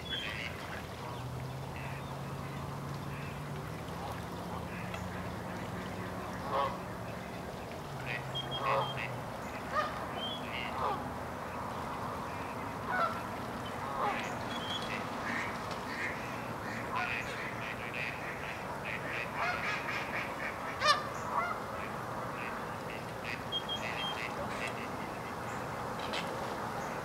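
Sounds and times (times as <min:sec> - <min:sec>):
ducks quacking: 0:00.0 - 0:07.4, 0:08.0 - 0:11.1, 0:12.3 - 0:26.3
geese honking: 0:04.0 - 0:06.9, 0:08.0 - 0:11.0, 0:12.8 - 0:13.2, 0:13.8 - 0:25.4.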